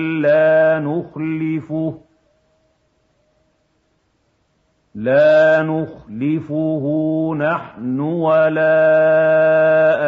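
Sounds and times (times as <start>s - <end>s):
man chanting: 0.0s - 2.1s, 5.0s - 10.0s
faint hiss: 0.0s - 10.0s
faint steady hum: 0.0s - 10.0s.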